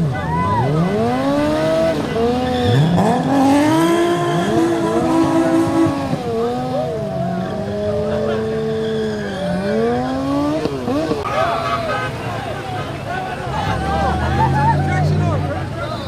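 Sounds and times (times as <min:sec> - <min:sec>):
vehicle engines revving: 0:00.0 - 0:16.0
tyre squeal: 0:02.3 - 0:06.0, 0:07.7 - 0:11.1.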